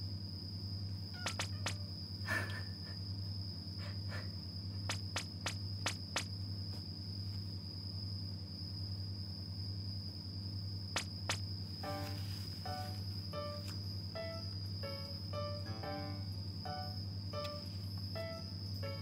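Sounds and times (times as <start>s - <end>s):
faint high whine: 0.8s - 6.7s, 11.0s - 19.0s
hand patting a cat: 1.2s - 1.8s, 4.9s - 6.8s.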